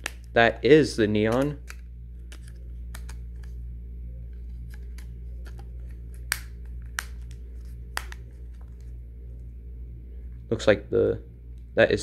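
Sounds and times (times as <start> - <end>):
steady low hum: 0.0 - 12.0
plastic clicks of phone cover: 1.3 - 3.6, 4.6 - 8.9.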